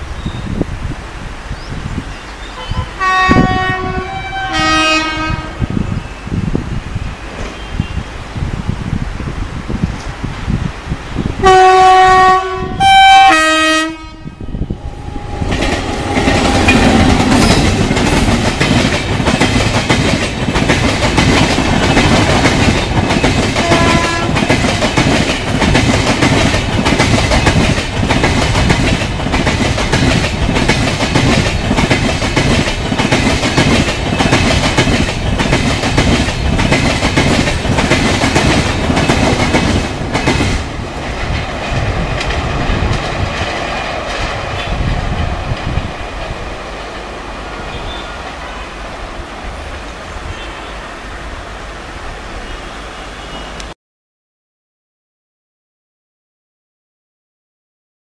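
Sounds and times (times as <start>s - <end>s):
train coaches rumbling past: 0.0s - 53.8s
locomotive horn blasts: 2.6s - 5.6s, 11.4s - 17.5s, 23.6s - 24.5s
wheels clickety-clack over rail joints: 15.3s - 48.9s.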